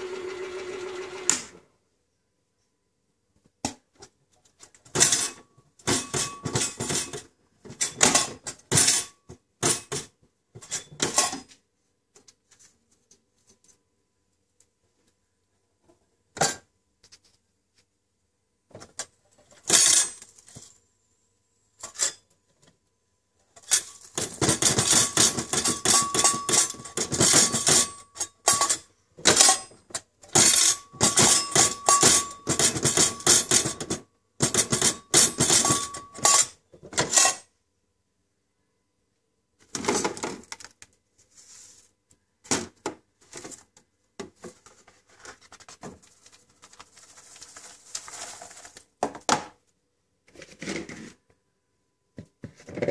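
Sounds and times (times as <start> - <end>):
popcorn spilling: 46.2 - 49.0.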